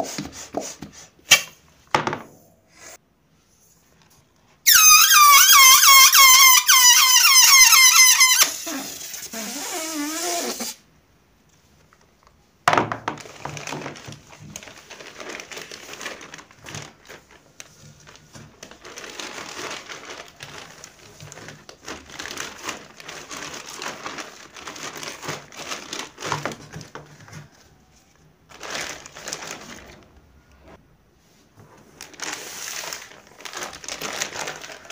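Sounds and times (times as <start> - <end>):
balloons rustling: 0.0 - 1.8, 4.6 - 10.8, 13.1 - 34.9
plastic bag crinkling: 13.1 - 27.8, 28.5 - 30.8, 31.8 - 34.9.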